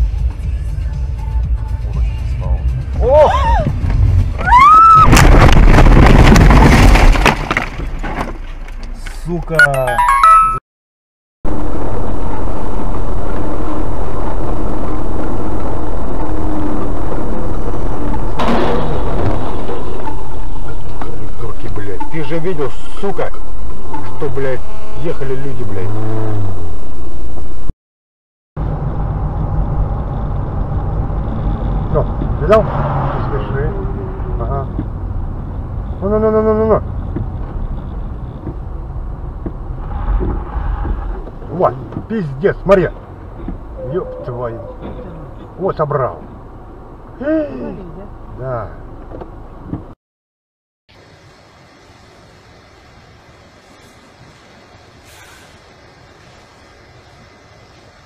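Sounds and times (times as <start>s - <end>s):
road and engine rumble: 0.0s - 10.6s, 11.4s - 27.7s, 28.6s - 50.0s, 50.9s - 58.0s
truck crash: 3.8s - 8.7s, 14.1s - 22.4s
held pitched tone: 9.6s - 10.6s, 43.7s - 45.2s.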